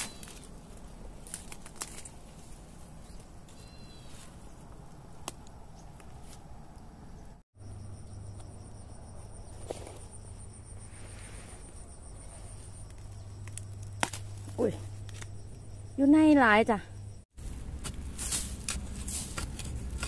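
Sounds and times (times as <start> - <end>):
rustling in dry bamboo litter: 0.0 - 5.1, 17.4 - 20.0.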